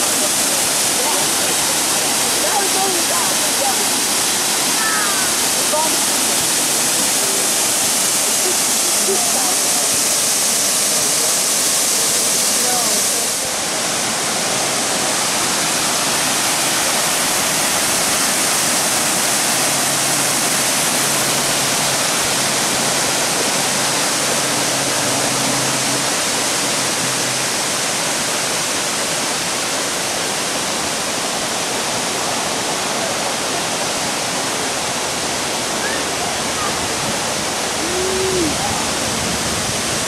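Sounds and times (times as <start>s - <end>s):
waterfall rushing: 0.0s - 40.0s.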